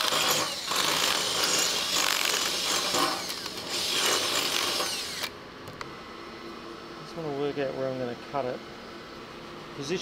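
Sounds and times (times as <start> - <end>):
power drill grinding into metal: 0.0 - 5.3.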